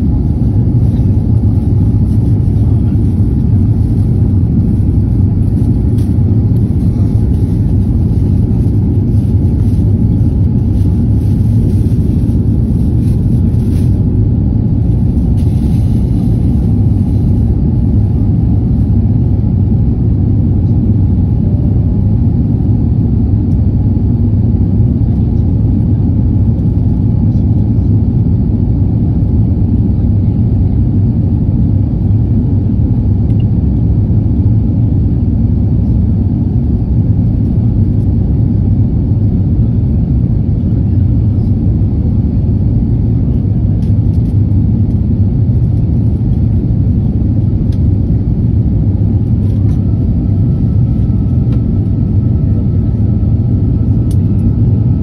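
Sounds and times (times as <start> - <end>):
airplane cabin engine noise: 0.0 - 55.0.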